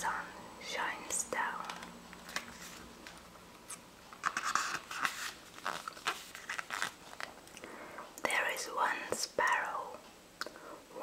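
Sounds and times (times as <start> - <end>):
book page turning: 1.6 - 7.4.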